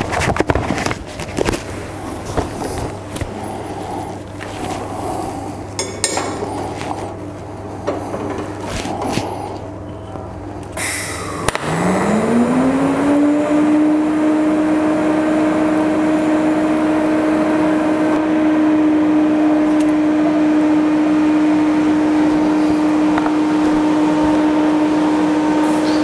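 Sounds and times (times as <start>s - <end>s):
welding arc humming: 10.8s - 26.0s.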